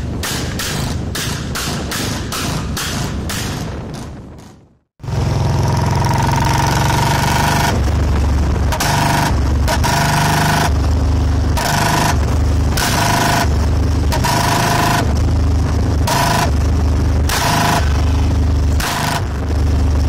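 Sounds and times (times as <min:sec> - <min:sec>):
motorcycle engine revving: 0:05.0 - 0:20.0.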